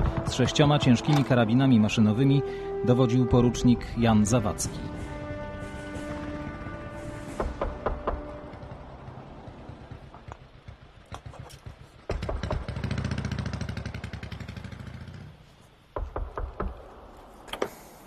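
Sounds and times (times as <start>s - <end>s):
engine pulsing: 4.7s - 15.5s.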